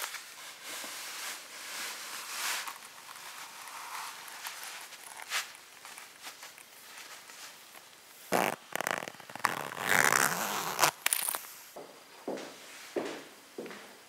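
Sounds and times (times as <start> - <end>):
metal zipper rasp: 8.3 - 11.0
leather boot creaking: 8.3 - 11.5.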